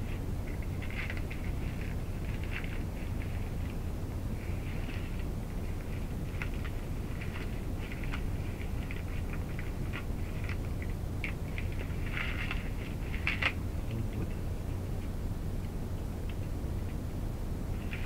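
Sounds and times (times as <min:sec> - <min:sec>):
wrapping paper crinkling: 0:00.0 - 0:13.6
steady low hum: 0:00.0 - 0:18.0.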